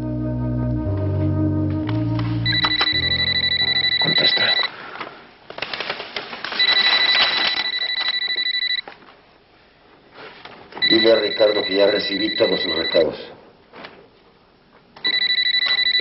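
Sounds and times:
background music: 0.0s - 4.6s
telephone ringing: 2.4s - 4.7s, 6.6s - 8.9s, 10.8s - 13.2s, 15.0s - 16.0s.

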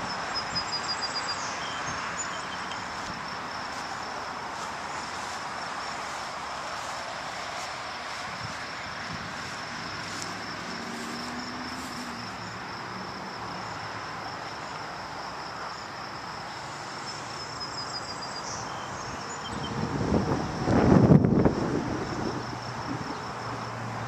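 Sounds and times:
insect chirring: 0.0s - 23.6s
distant traffic: 0.0s - 24.0s
wind buffeting microphone: 8.2s - 9.7s, 19.5s - 23.3s.

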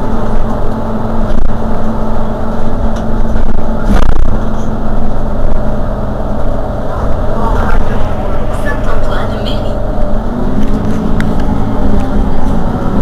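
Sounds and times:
bus engine idling: 0.0s - 13.0s.

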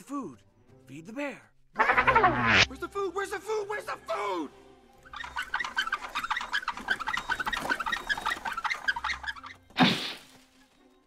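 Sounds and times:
birds chirping: 5.0s - 9.8s.

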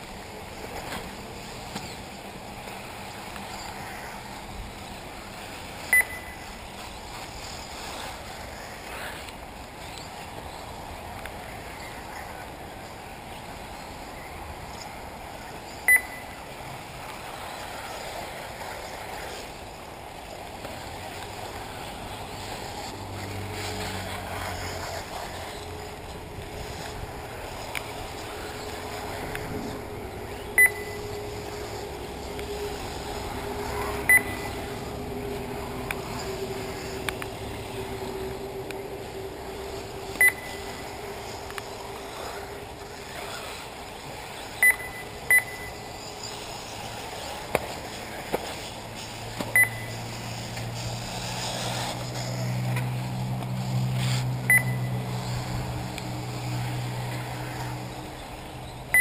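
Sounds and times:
outdoor background noise: 0.0s - 59.0s
short electronic beeps: 5.9s - 6.4s, 15.9s - 16.4s, 30.6s - 31.1s, 34.0s - 34.6s, 40.2s - 40.8s, 44.6s - 45.9s, 49.5s - 50.0s, 54.5s - 54.9s
low hum: 20.6s - 47.5s.

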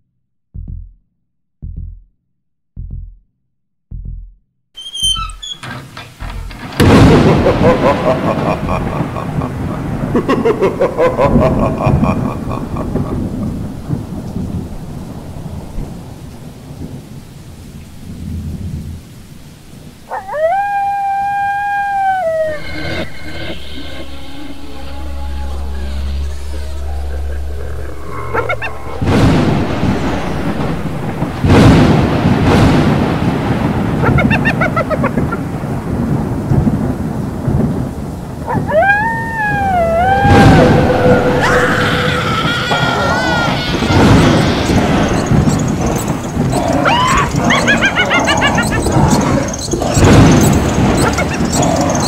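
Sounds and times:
steady rain: 5.4s - 52.0s
thunder rumbling: 5.4s - 52.0s
long rising howl: 20.1s - 31.5s, 38.6s - 50.1s
short high cries: 38.8s - 52.0s.

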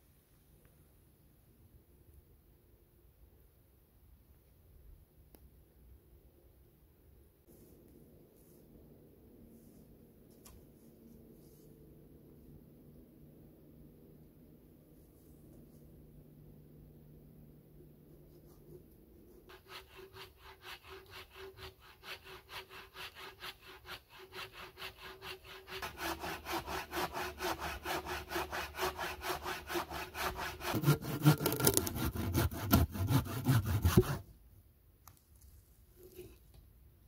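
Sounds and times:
hand saw cutting log: 19.5s - 34.2s.

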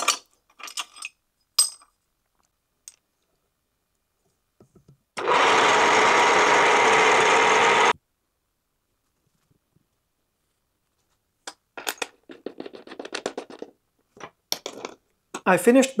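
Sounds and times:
drill press whining: 5.2s - 8.0s.

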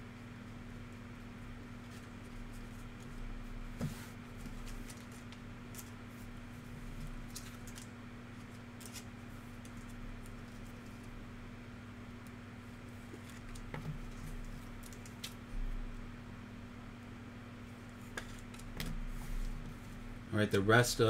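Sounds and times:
low electrical hum: 0.0s - 21.0s
trading cards clicking and rustling: 7.2s - 11.1s, 13.1s - 15.4s.

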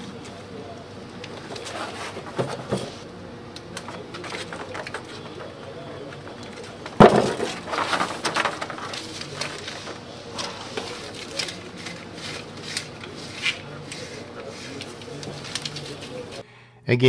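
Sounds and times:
crackling and rustling of velcro: 7.6s - 16.4s.

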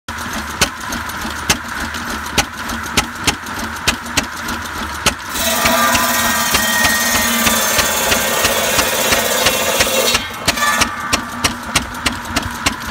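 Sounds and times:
stationary engine firing beats: 0.2s - 12.9s
buzz saw cutting log: 5.3s - 12.2s.

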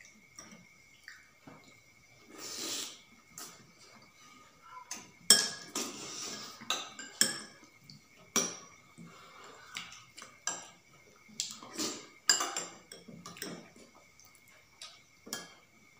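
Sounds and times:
metal spoons clinking on steel plates: 12.3s - 13.6s.

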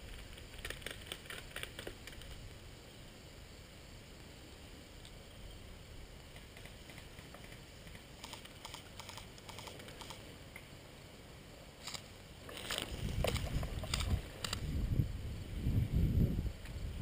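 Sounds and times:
rifle handling noise: 11.9s - 14.6s.

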